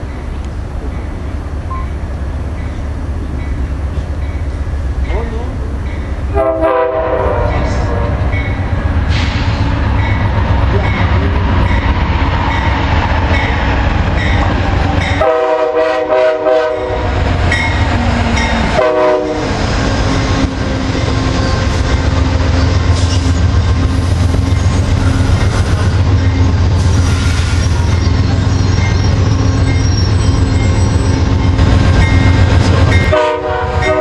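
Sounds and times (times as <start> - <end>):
wheels rumbling on rail: 0.0 - 34.0
train horn: 6.3 - 8.3, 15.2 - 17.2, 18.6 - 19.6, 33.0 - 34.0.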